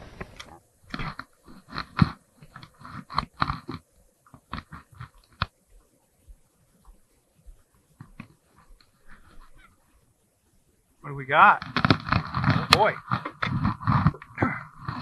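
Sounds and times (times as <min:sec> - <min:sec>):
gear handled near microphone: 0:11.6 - 0:15.0.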